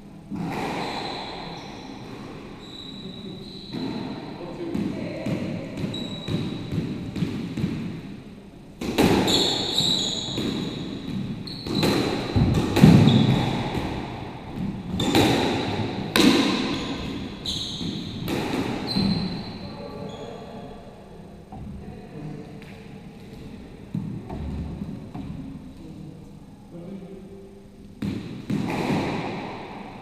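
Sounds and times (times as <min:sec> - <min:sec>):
shoes squeaking on wooden floor: 0:09.3 - 0:13.6, 0:16.7 - 0:20.4
squash ball cracking off rackets: 0:10.4 - 0:17.2, 0:28.0 - 0:29.9.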